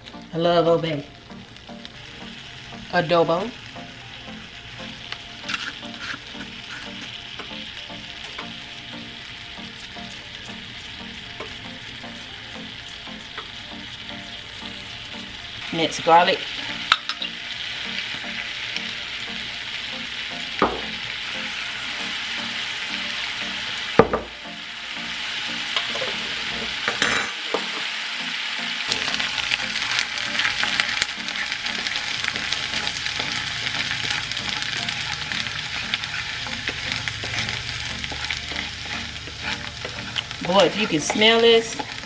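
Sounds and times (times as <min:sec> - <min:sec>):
garlic sizzling in frying pan: 0:00.0 - 0:42.0
wooden spatula scraping pan: 0:05.5 - 0:07.1, 0:32.4 - 0:42.0.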